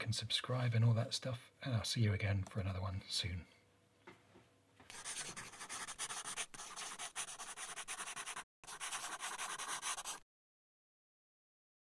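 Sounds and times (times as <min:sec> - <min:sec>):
pen scratching on paper: 0:04.9 - 0:10.2.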